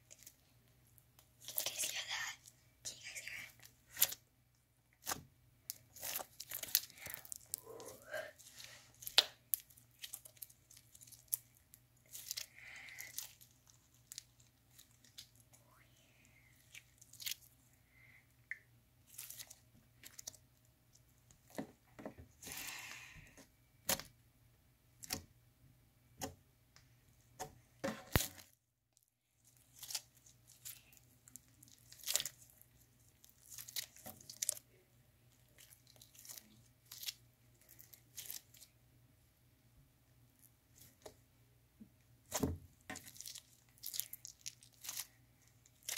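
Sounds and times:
slime squelching: 0:00.0 - 0:04.3, 0:04.9 - 0:24.2, 0:29.4 - 0:38.8, 0:42.2 - 0:45.9
slime popping and crackling: 0:05.0 - 0:08.1, 0:09.0 - 0:15.4, 0:29.4 - 0:34.7, 0:42.3 - 0:45.9.

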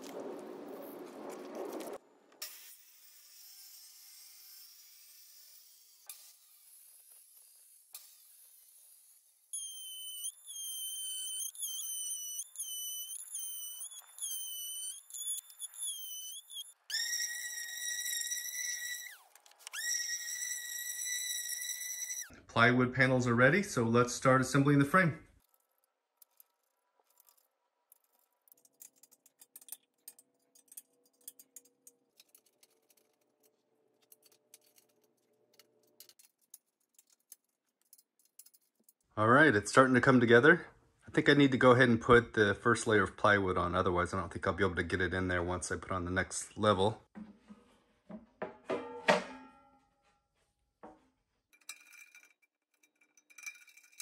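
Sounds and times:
clicks of small metal parts: 0:25.4 - 0:39.0.

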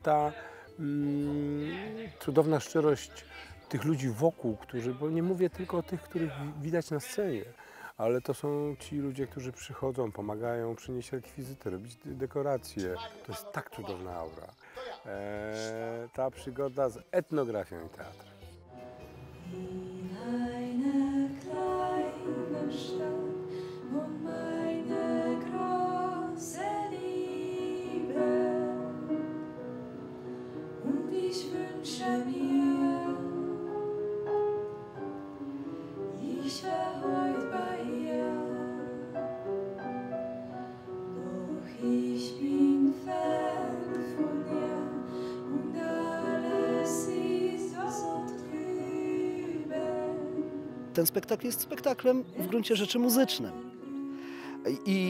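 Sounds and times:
piano accompaniment: 0:18.6 - 0:55.0
women singing in harmony: 0:19.3 - 0:39.8, 0:40.4 - 0:54.9.

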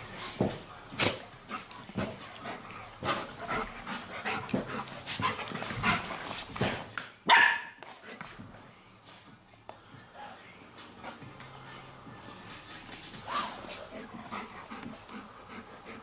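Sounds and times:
dogs yipping and barking: 0:07.3 - 0:07.8.

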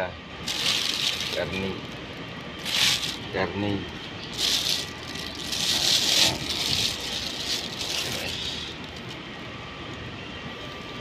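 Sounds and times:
plastic bag crinkling: 0:00.4 - 0:09.2.

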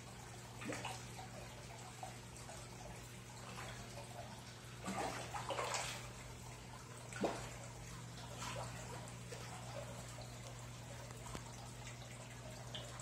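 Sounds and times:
water trickling: 0:00.0 - 0:13.0
fish splashing at water surface: 0:03.4 - 0:13.0.

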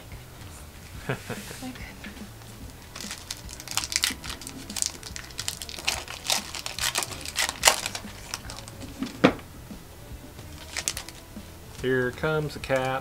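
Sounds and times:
trading cards handled: 0:02.7 - 0:09.4, 0:10.5 - 0:11.9
foil wrapper crinkling: 0:02.9 - 0:09.3, 0:10.5 - 0:11.3.

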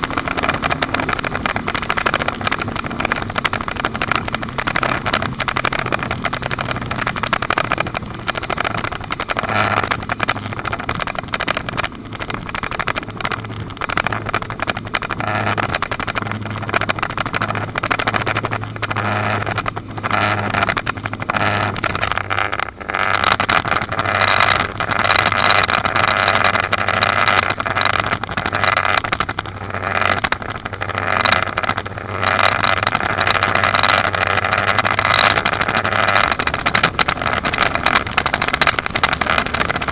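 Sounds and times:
rush of wind and water: 0:00.0 - 0:39.9
speedboat engine drone: 0:00.0 - 0:39.9.

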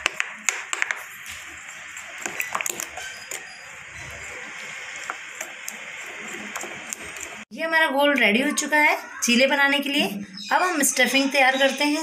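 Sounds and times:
spoon stirring thick batter: 0:00.0 - 0:07.5.

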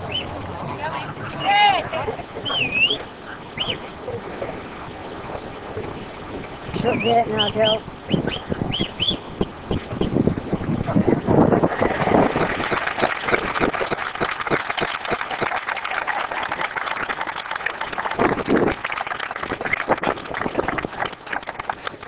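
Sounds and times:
people talking: 0:00.6 - 0:03.0, 0:03.6 - 0:04.6, 0:06.7 - 0:07.8, 0:10.8 - 0:13.7
crowd clapping: 0:11.6 - 0:22.0.

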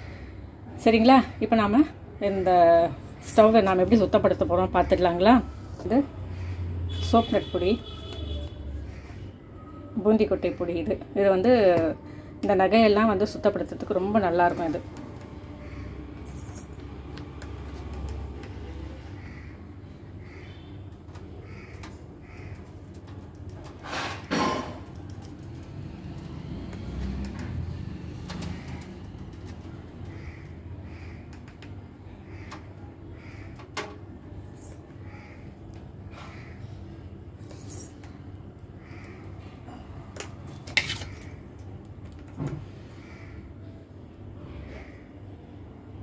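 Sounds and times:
crows cawing faintly: 0:00.0 - 0:00.5, 0:02.4 - 0:07.0, 0:07.8 - 0:09.9, 0:15.0 - 0:23.5, 0:27.8 - 0:34.0, 0:34.8 - 0:37.2, 0:38.7 - 0:40.1, 0:42.7 - 0:43.8, 0:44.4 - 0:45.4
low background hum: 0:00.0 - 0:46.0.

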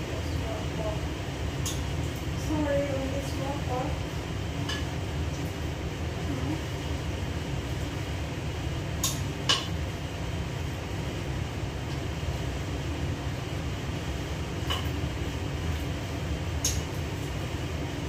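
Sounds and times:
range hood fan humming: 0:00.0 - 0:18.0.

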